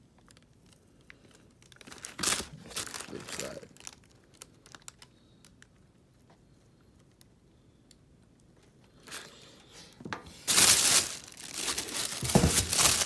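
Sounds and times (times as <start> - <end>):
tissue paper rustling and crinkling: 1.7 - 4.8, 10.3 - 13.0.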